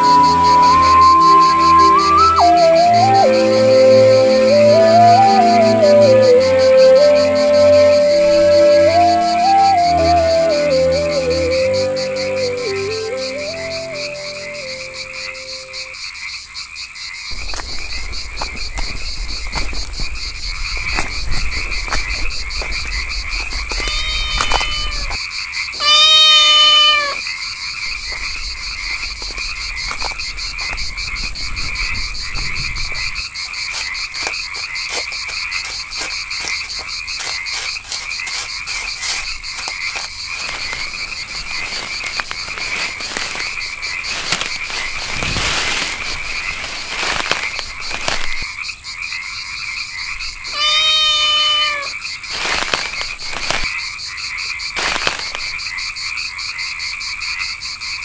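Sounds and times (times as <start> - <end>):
rustling leaves and undergrowth: 0.0 - 16.2, 17.2 - 48.6, 50.2 - 56.0
frogs trilling: 0.0 - 58.0
cat meowing: 23.8 - 25.2, 25.8 - 27.2, 50.5 - 51.9.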